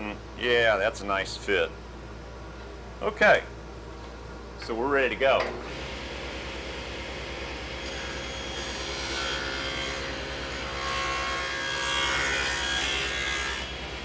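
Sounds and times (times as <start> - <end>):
table saw humming: 5.7 - 14.0
saw cutting wooden board: 7.8 - 14.0.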